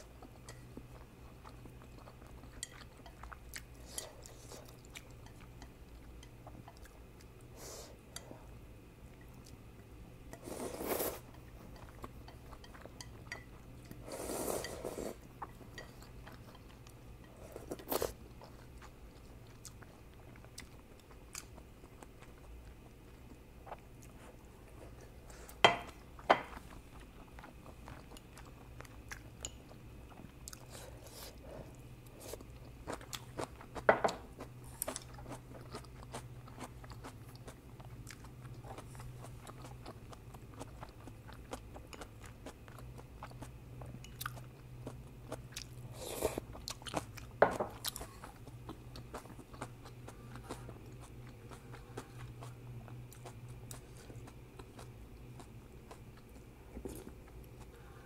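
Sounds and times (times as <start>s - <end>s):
chewing with crunches: 0.0s - 58.0s
slurping noodles: 10.4s - 11.2s.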